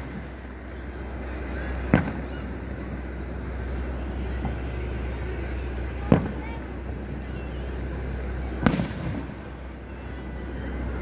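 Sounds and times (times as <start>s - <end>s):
low background rumble: 0.0s - 11.0s
firework bang: 1.8s - 2.4s, 8.6s - 9.4s.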